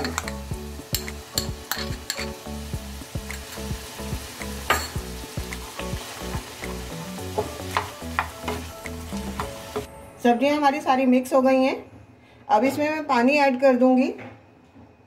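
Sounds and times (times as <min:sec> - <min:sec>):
vegetables sizzling: 0:00.0 - 0:09.9
spatula knocking and scraping pan: 0:04.6 - 0:08.7.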